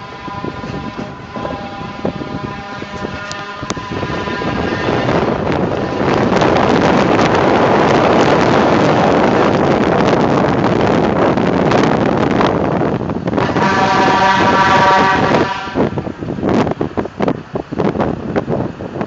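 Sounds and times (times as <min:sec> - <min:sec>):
road and wind noise: 0:00.0 - 0:19.0.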